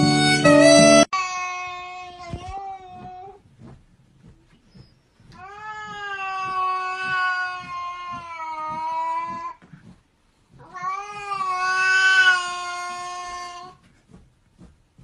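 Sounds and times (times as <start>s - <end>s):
cat yowling: 5.4s - 9.6s, 10.6s - 13.8s.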